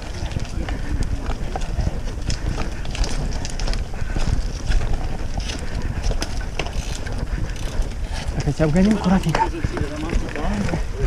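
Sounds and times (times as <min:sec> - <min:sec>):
bike tyres on loose dirt: 0:00.0 - 0:11.0
wind rumbling on microphone: 0:00.0 - 0:11.0.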